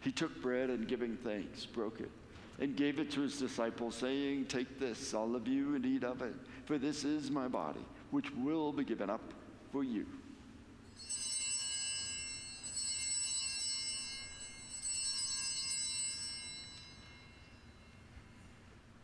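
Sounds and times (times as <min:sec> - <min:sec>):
altar bells ringing: 0:10.9 - 0:18.8.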